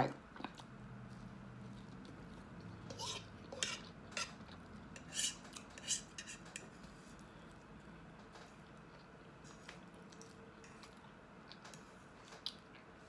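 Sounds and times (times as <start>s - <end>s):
fork clinking and scraping dish: 2.9s - 6.8s.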